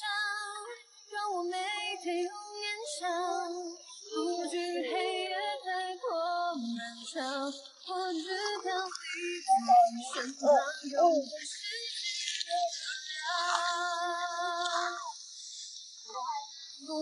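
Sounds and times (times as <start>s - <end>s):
high voice singing slow melody: 0.0s - 15.2s, 16.1s - 17.0s.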